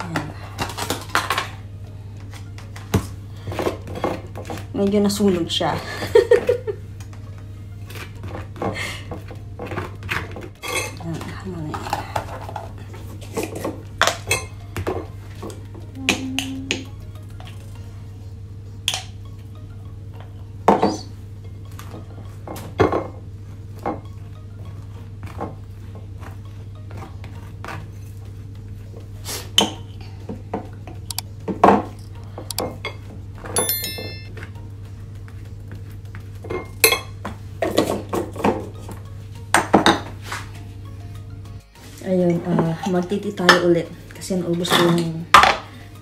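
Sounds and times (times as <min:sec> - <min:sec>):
knife clinking on plate and jar: 0:33.6 - 0:34.3.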